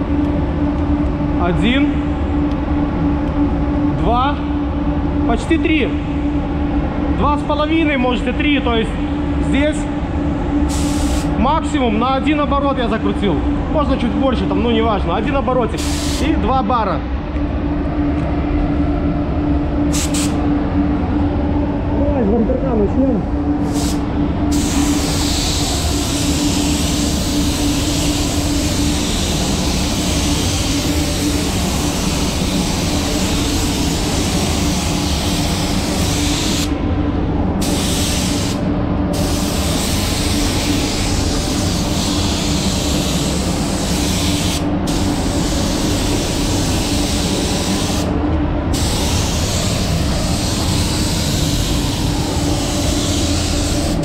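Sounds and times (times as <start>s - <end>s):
ventilation hum: 0.0s - 54.0s
spray gun hissing: 10.7s - 11.3s, 15.8s - 16.2s, 19.9s - 20.4s, 23.6s - 36.7s, 37.6s - 48.1s, 48.7s - 54.0s.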